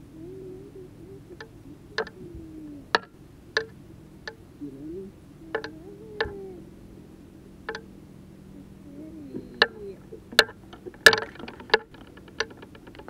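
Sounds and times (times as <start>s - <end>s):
short rattling: 9.4s - 13.0s.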